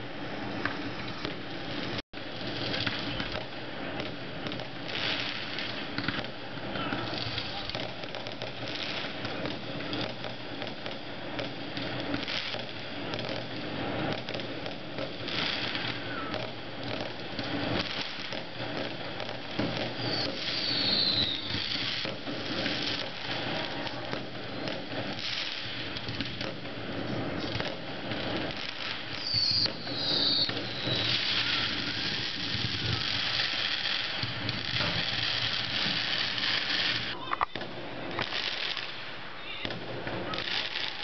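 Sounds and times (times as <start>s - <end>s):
fireworks crackling and popping: 0.0s - 41.0s
falling firework whistles: 14.1s - 18.4s, 19.2s - 26.5s, 27.2s - 37.2s.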